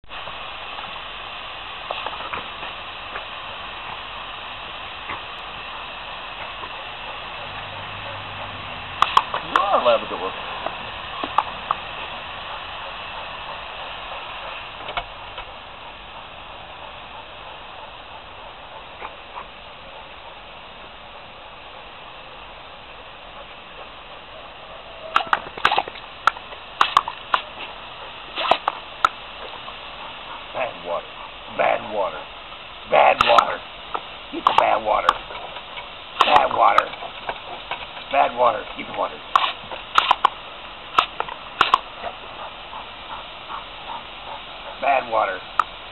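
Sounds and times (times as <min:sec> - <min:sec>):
hose spray nozzle hissing: 0:00.2 - 0:21.7, 0:23.5 - 0:31.5, 0:32.2 - 0:45.9
dog snapping at water stream: 0:07.4 - 0:10.0, 0:10.6 - 0:15.6, 0:25.1 - 0:29.6, 0:33.0 - 0:44.8
water splashes: 0:25.1 - 0:29.6.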